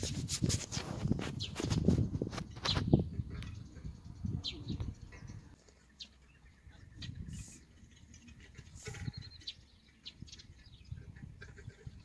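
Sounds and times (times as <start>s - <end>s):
bird chirps: 2.5s - 12.0s.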